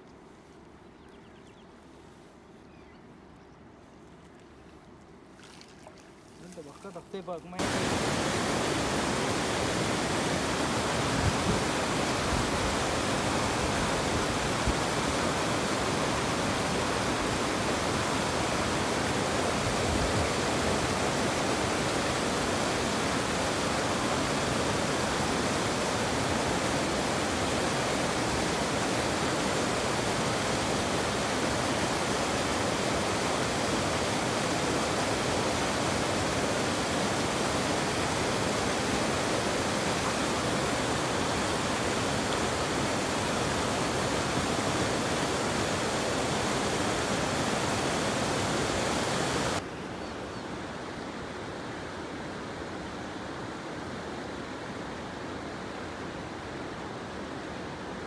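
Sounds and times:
rushing water: 4.1 - 58.0.

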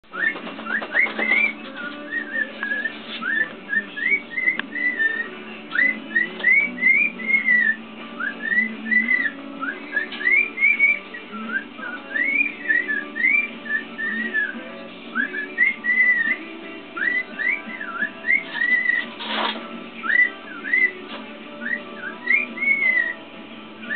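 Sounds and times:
background music: 0.0 - 23.9
cockatiel whistling: 0.1 - 23.2.

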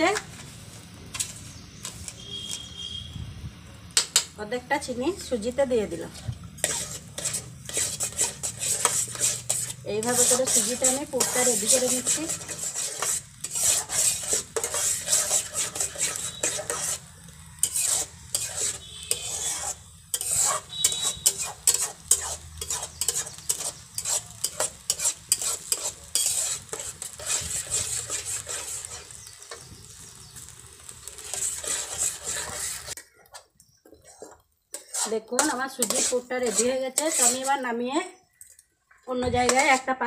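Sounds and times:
mixture sizzling in pot: 0.0 - 40.0
metal spoon scraping metal pot: 6.1 - 29.7, 31.1 - 37.8, 39.4 - 40.0.

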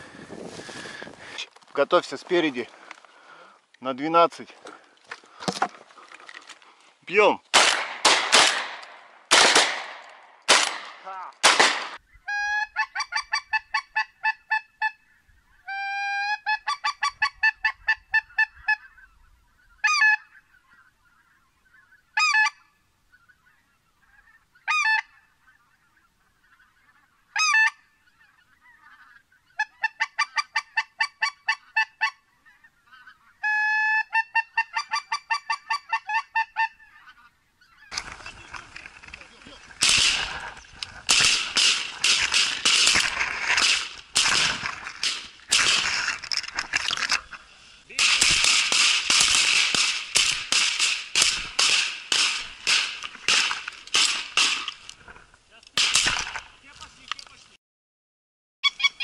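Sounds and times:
shotgun shots: 7.5 - 12.0, 39.8 - 46.1, 48.0 - 54.8, 55.8 - 56.4
geese honking: 12.0 - 50.5.

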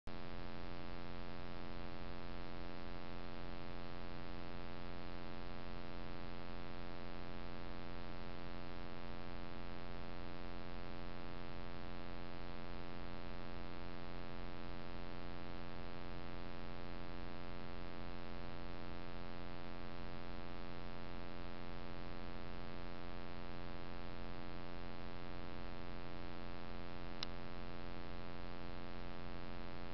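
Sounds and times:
faint click: 27.2 - 27.4.

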